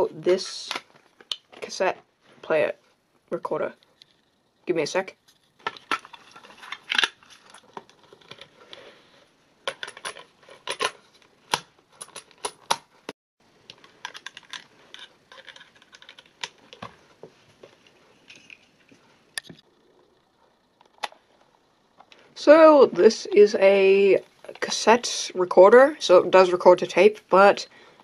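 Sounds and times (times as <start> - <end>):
plastic clicks and rattles: 9.6 - 12.9, 13.6 - 17.0.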